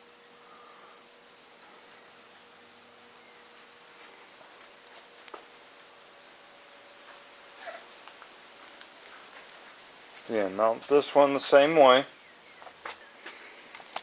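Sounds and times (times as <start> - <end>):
crickets chirping: 0.0 - 10.8, 11.9 - 14.0
faint steady hum: 0.0 - 14.0.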